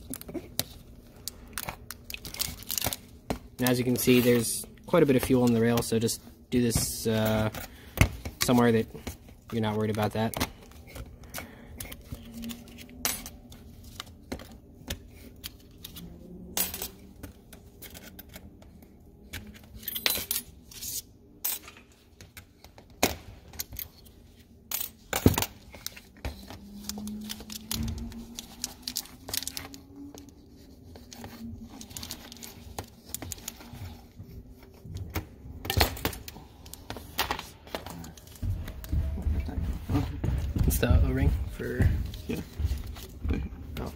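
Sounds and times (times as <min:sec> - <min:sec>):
metal parts clicking and clinking: 0:15.8 - 0:17.1, 0:19.4 - 0:20.8, 0:23.5 - 0:30.3.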